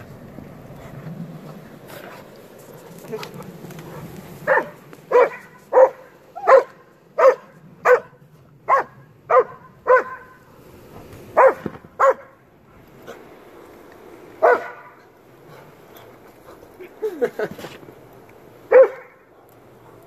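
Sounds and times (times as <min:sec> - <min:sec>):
dog barking: 0:04.4 - 0:10.4, 0:11.4 - 0:12.4, 0:14.4 - 0:15.0, 0:18.7 - 0:19.3.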